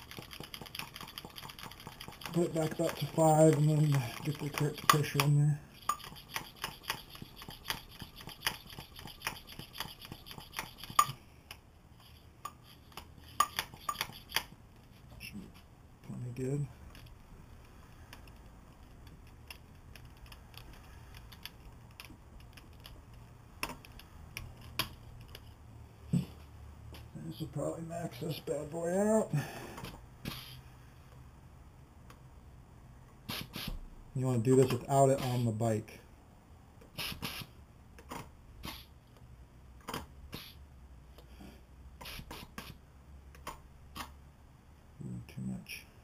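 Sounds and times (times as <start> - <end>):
bike pump and gauge clicks: 0.0 - 11.6
air hissing from valve: 33.3 - 33.8, 37.0 - 37.5.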